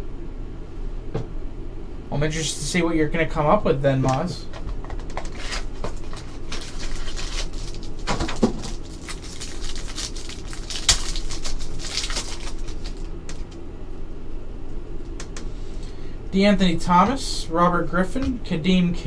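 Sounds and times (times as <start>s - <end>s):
foil wrapper crinkling and tearing: 5.0s - 13.6s
sharp wrapper snap: 6.5s - 13.6s.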